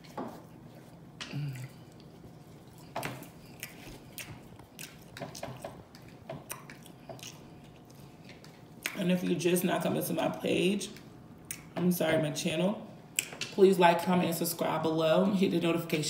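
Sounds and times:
chewing with wet lip smacks: 0.0 - 9.0, 10.9 - 11.8.

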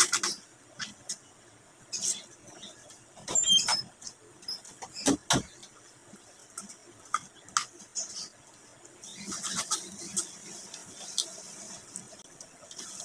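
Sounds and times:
steady hiss: 5.6 - 13.0.

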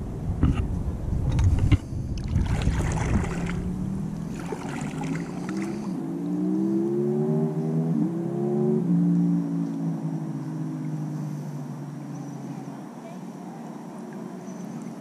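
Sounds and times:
water splashing: 2.2 - 6.0.

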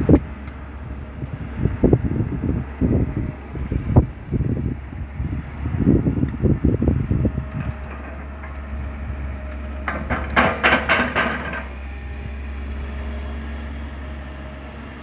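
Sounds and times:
diesel engine running: 0.0 - 15.0
earth and stones clattering into truck: 9.9 - 11.7.

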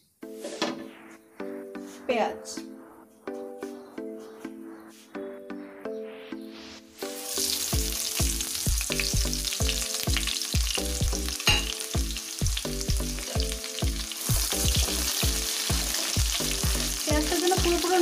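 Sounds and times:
background music with beat: 0.0 - 18.0
onions sizzling in hot oil: 7.0 - 18.0.

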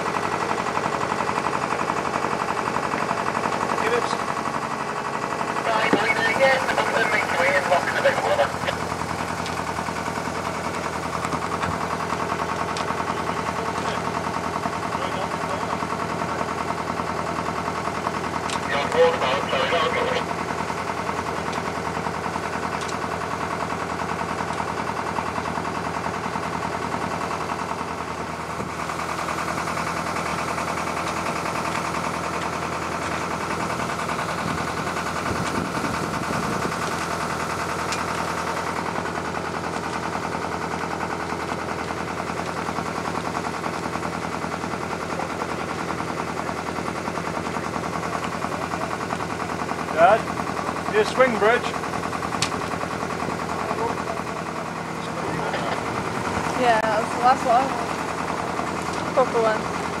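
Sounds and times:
boat engine knocking: 0.0 - 60.0.

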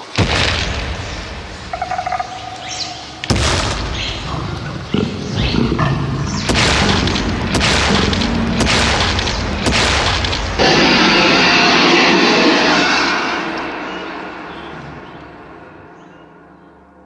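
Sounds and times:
booming rumbles: 0.0 - 15.9
deep creature roars: 4.2 - 15.7.

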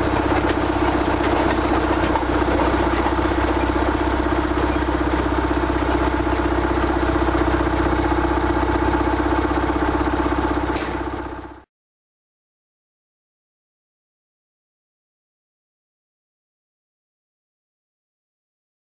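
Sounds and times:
locomotive engine idling: 0.0 - 11.6.

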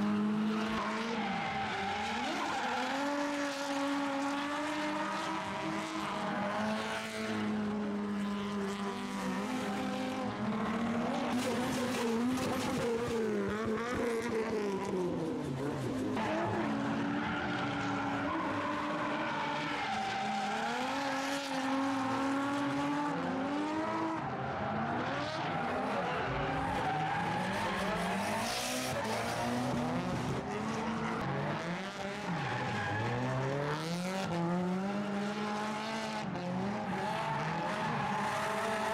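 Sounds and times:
car engines revving: 0.0 - 38.9.

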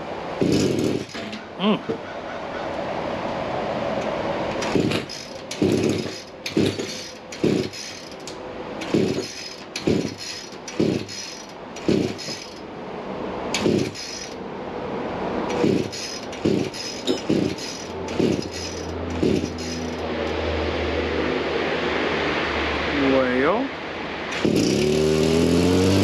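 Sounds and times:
recoil starter pulls: 0.4 - 1.4, 4.5 - 12.6, 15.5 - 20.0, 24.3 - 26.0.

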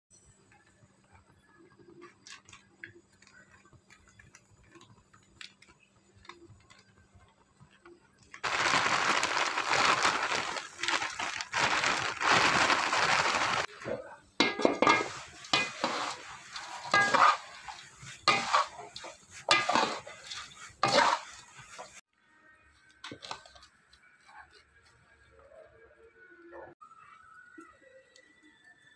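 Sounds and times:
dry flakes rattling into a pan: 8.4 - 13.7, 14.4 - 22.0
metal spatula scraping a pan: 13.8 - 22.0.

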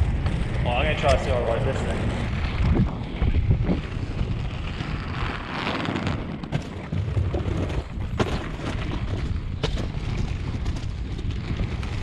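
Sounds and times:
skate wheels rolling on tarmac: 0.0 - 12.0
wind buffeting microphone: 0.0 - 12.0.

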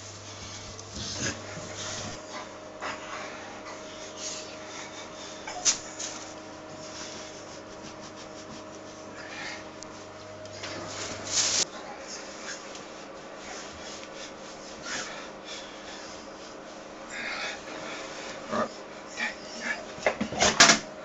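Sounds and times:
towel rubbing wet dog: 0.0 - 18.4
dog breathing: 0.2 - 20.0.

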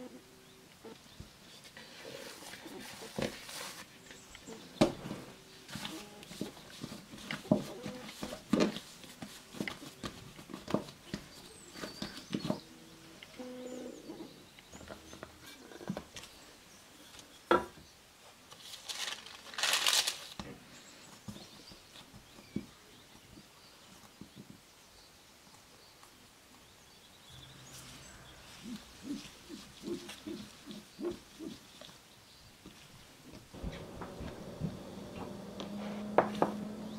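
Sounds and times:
short rustle: 18.3 - 21.0.

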